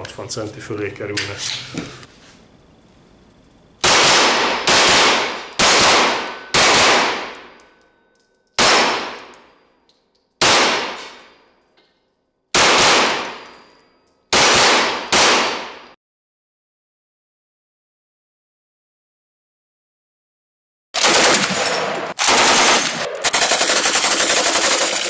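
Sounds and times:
gunshots echoing indoors: 0:03.8 - 0:09.6, 0:10.4 - 0:11.5, 0:12.5 - 0:13.6, 0:14.3 - 0:16.0, 0:21.0 - 0:24.6.

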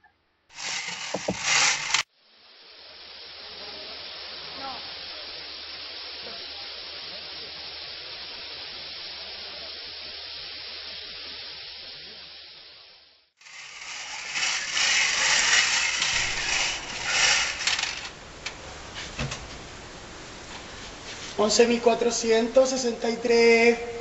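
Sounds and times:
steady hiss: 0:00.5 - 0:24.0
balls rattling in toy bingo cage: 0:00.6 - 0:02.0, 0:13.4 - 0:18.1.

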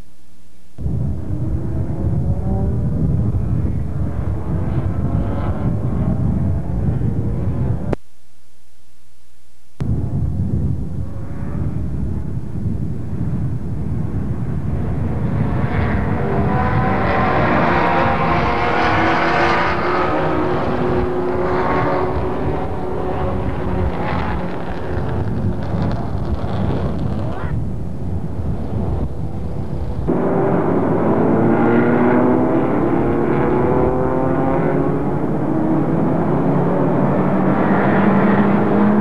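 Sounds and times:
car engine accelerating: 0:00.8 - 0:08.0, 0:11.0 - 0:27.4, 0:28.2 - 0:39.0
race car engines passing: 0:01.2 - 0:08.0, 0:14.4 - 0:27.3, 0:28.6 - 0:39.0.

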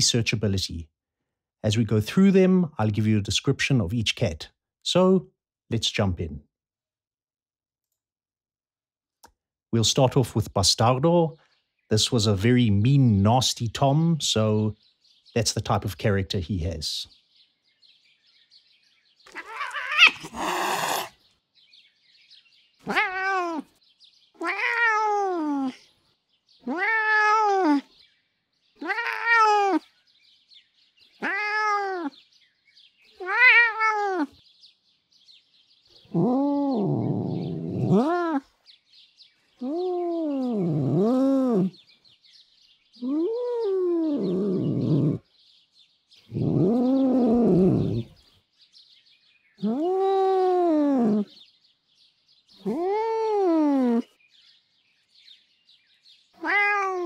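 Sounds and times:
cat meowing: 0:19.3 - 0:21.1, 0:22.8 - 0:25.8, 0:26.6 - 0:27.9, 0:28.8 - 0:29.9, 0:31.2 - 0:32.2, 0:33.2 - 0:34.4, 0:39.6 - 0:41.7, 0:46.4 - 0:48.1, 0:52.6 - 0:54.1, 0:56.4 - 0:57.0
cat growling: 0:19.3 - 0:21.2, 0:22.8 - 0:23.8, 0:24.4 - 0:25.8, 0:26.6 - 0:27.9, 0:28.8 - 0:29.8, 0:31.2 - 0:32.2, 0:33.2 - 0:34.3, 0:36.1 - 0:38.5, 0:39.6 - 0:41.8, 0:43.0 - 0:45.2, 0:46.3 - 0:48.2, 0:49.6 - 0:51.4, 0:52.6 - 0:54.2, 0:56.4 - 0:57.0
cat yowling and hissing: 0:19.3 - 0:21.2, 0:22.8 - 0:23.8, 0:24.4 - 0:25.8, 0:26.6 - 0:27.9, 0:28.8 - 0:29.9, 0:31.2 - 0:32.2, 0:33.2 - 0:34.4, 0:36.1 - 0:38.5, 0:39.6 - 0:41.8, 0:43.0 - 0:45.2, 0:46.3 - 0:48.2, 0:49.6 - 0:51.3, 0:52.6 - 0:54.2, 0:56.4 - 0:57.0.

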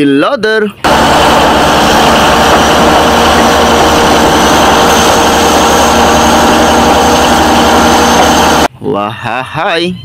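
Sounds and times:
bulldozer diesel engine: 0:00.9 - 0:08.7.

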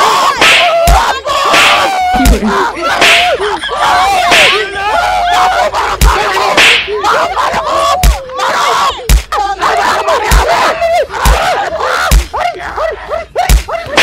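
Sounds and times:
people shouting: 0:00.0 - 0:14.0
slaps and punches landing: 0:00.4 - 0:03.4, 0:04.3 - 0:04.6, 0:06.0 - 0:06.9, 0:09.1 - 0:09.3, 0:10.3 - 0:10.6, 0:11.2 - 0:11.5, 0:12.1 - 0:12.3, 0:13.5 - 0:14.0.

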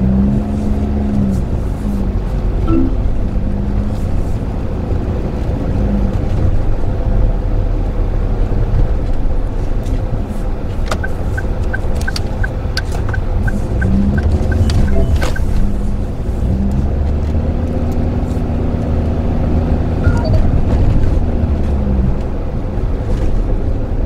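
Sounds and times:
car cabin engine rumble: 0:00.0 - 0:24.0
quick even ticking: 0:10.9 - 0:15.7.

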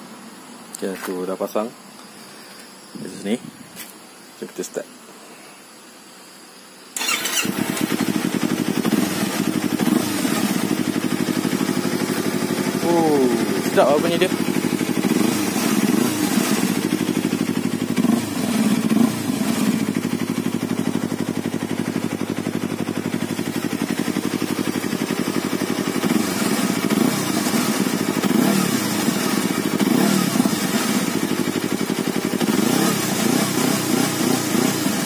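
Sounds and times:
engine throttle blips: 0:07.0 - 0:20.9
motorcycle engine idling: 0:07.0 - 0:35.0.

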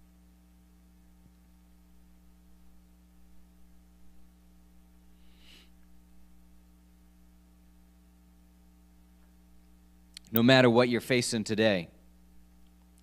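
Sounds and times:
low electrical hum: 0:00.0 - 0:13.0
faint breath into microphone: 0:05.1 - 0:05.9.

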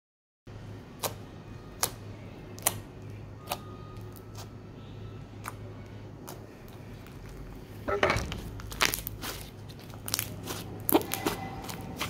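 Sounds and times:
low steady hum: 0:00.5 - 0:12.0.

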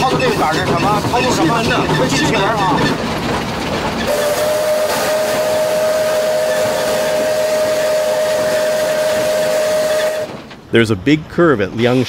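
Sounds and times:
steam hissing: 0:04.0 - 0:10.4
steam locomotive whistle: 0:04.1 - 0:10.4.

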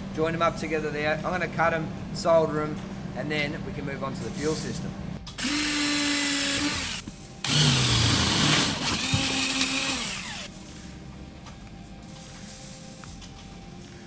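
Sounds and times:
cordless drill drilling metal: 0:05.4 - 0:10.5.

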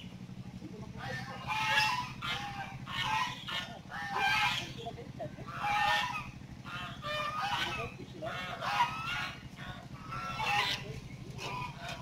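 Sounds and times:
geese honking: 0:00.0 - 0:12.0
steady low hum: 0:00.0 - 0:12.0.

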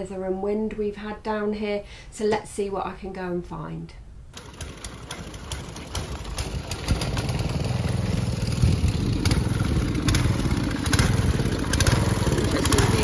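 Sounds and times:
outdoor background noise: 0:00.0 - 0:13.0
engine rumbling: 0:04.3 - 0:13.0.

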